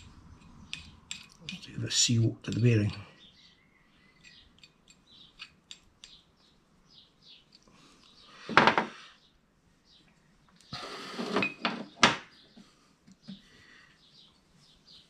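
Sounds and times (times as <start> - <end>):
faint bird chirps: 3.1 - 8.5.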